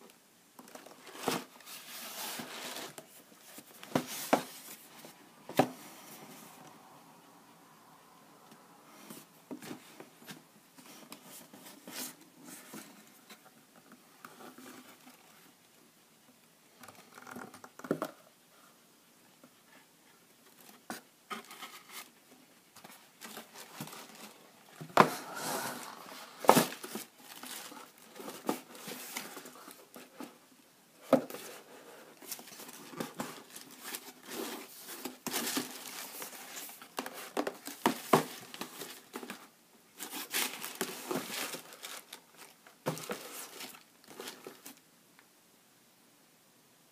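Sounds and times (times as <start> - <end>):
tissue paper rustling: 22.8 - 30.3, 31.4 - 44.8
cardboard lid sliding: 24.8 - 27.1.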